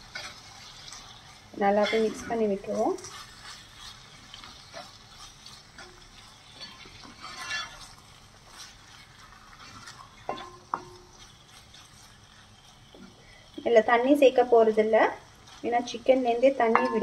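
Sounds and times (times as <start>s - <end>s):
faint sizzle: 0.0s - 17.0s
wooden spatula scraping pot: 1.6s - 13.2s.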